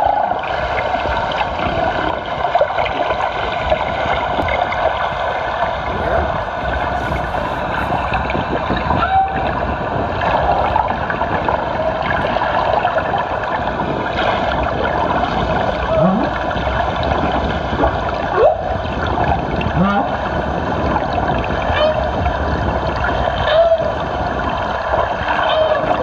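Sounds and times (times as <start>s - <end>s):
whale calls: 0.0s - 0.5s, 5.9s - 10.8s, 15.6s - 16.7s, 18.3s - 20.2s, 21.7s - 22.2s, 23.3s - 24.5s, 25.2s - 26.0s
sea noise hiss: 5.8s - 8.4s.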